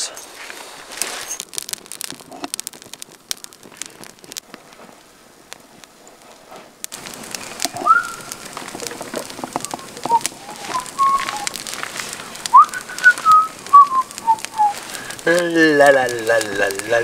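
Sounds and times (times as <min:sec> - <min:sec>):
campfire crackling: 0:00.0 - 0:17.0
person whistling a tune: 0:07.8 - 0:08.2, 0:10.1 - 0:11.5, 0:12.5 - 0:14.7.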